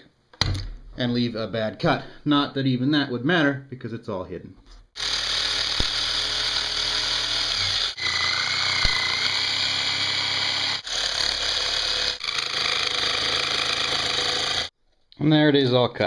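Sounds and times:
jigsaw cutting plastic sheet: 5.0s - 14.7s.

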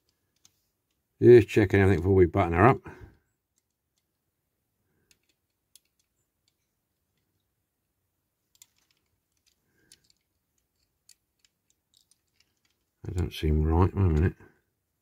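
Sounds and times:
toy car clicks: 5.0s - 6.6s, 8.5s - 12.9s.

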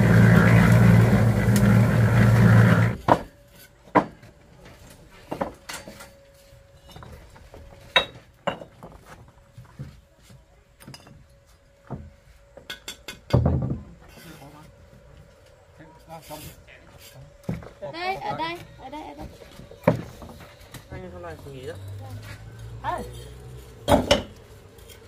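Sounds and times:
engine running with low drone: 0.0s - 3.1s, 20.4s - 25.0s.

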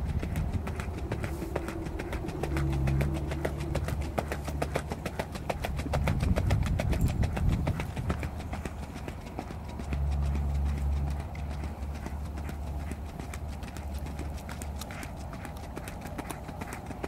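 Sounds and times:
low rumble: 0.0s - 5.0s
hoofbeats on gravel: 0.0s - 17.0s.

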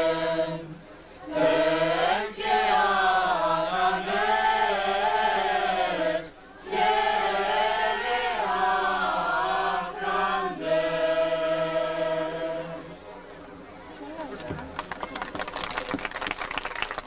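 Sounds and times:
choir singing: 0.0s - 13.0s.

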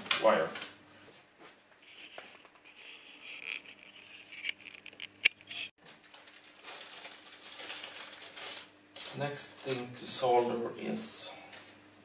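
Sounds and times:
paper rustling: 1.8s - 9.9s.

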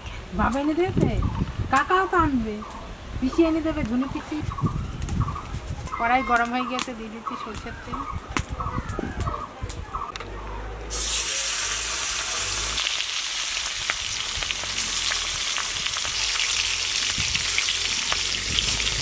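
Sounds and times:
fish sizzling in hot oil: 10.9s - 19.0s.

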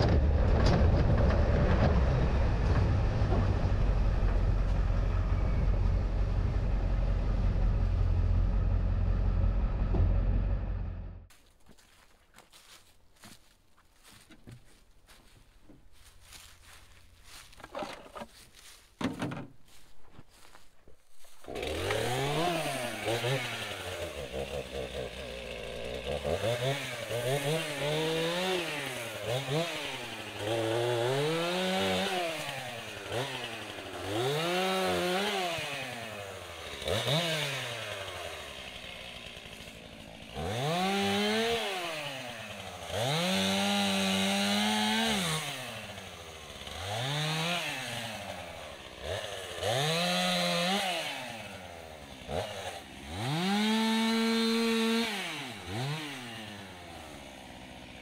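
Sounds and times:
chainsaw revving and idling: 3.7s - 11.3s, 21.2s - 58.0s.

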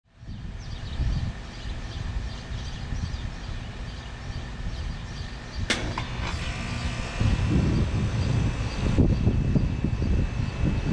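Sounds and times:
wind rumble on microphone: 0.1s - 10.9s
heat pump contactor click: 5.7s - 6.4s.

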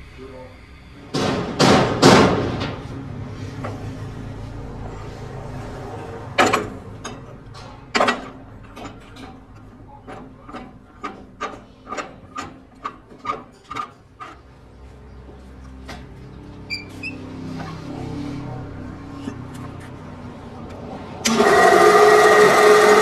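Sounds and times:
loud knocks: 1.1s - 2.9s.

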